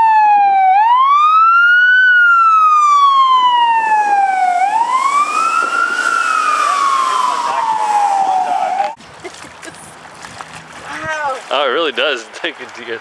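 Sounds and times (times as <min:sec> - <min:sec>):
fire engine siren wailing: 0:00.0 - 0:09.0
truck tyres hissing on wet street: 0:04.1 - 0:13.0.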